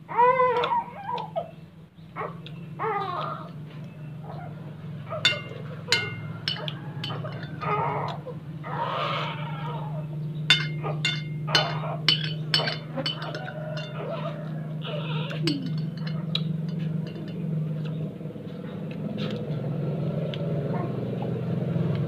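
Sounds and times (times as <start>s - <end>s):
spoon clinking against glass bowl: 5.2s - 8.2s, 10.5s - 14.6s, 15.4s - 17.7s.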